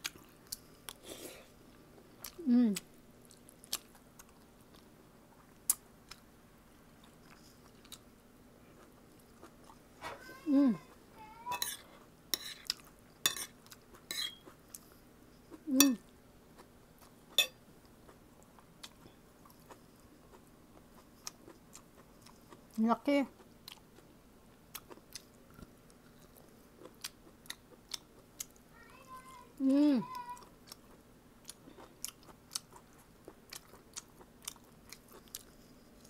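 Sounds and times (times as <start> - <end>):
chewing: 1.7 - 6.2, 6.9 - 9.9, 10.8 - 15.6, 16.5 - 28.6, 30.1 - 36.0
cutlery clinking on a plate: 11.5 - 11.8, 13.3 - 13.5, 14.1 - 14.4, 17.4 - 17.6
person humming briefly: 29.6 - 30.1.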